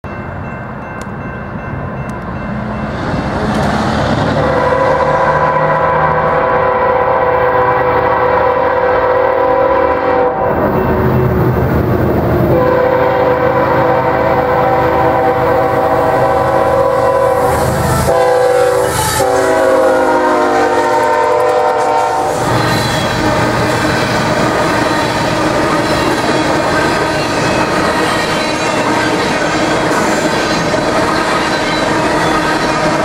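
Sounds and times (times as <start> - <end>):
freight cars rumbling on rails: 0.1 - 33.0
locomotive multi-chime horn: 4.3 - 11.1, 12.5 - 23.4.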